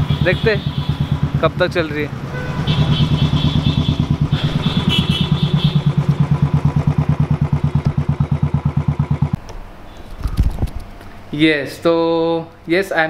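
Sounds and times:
motorcycle engine idling: 0.0s - 10.2s.

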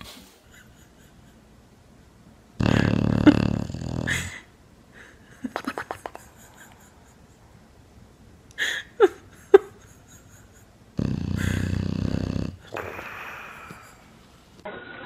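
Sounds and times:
dog snoring: 2.6s - 4.3s, 11.0s - 13.1s.

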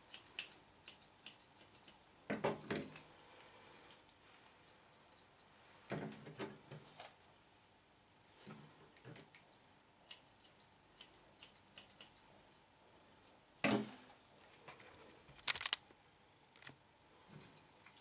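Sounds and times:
scissors snipping hair: 0.1s - 2.0s, 9.4s - 12.2s.

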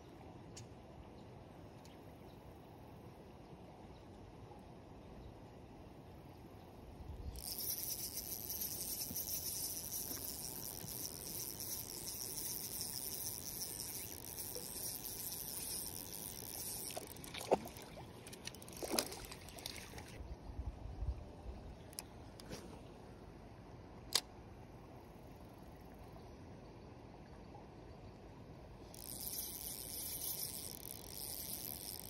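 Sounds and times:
fishing reel whirring: 7.3s - 19.5s, 28.9s - 32.0s.

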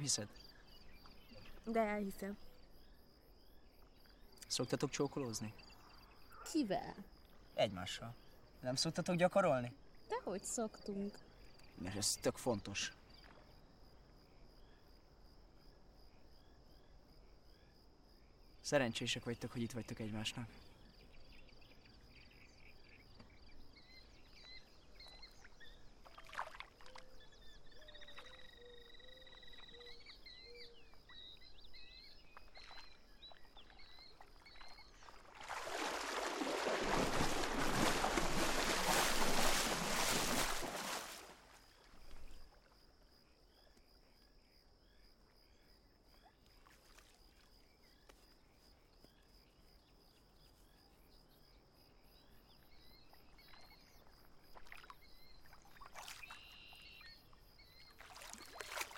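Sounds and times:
crickets chirping: 0.0s - 58.9s
faint whistled calls: 22.4s - 35.1s, 55.1s - 58.9s
water splashing: 25.4s - 27.2s, 32.3s - 42.5s, 55.5s - 56.5s, 57.9s - 58.9s.

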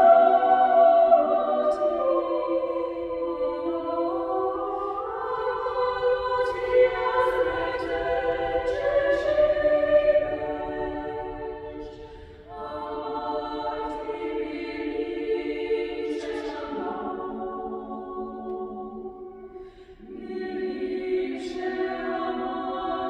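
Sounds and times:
choir singing a cappella: 0.0s - 23.0s.

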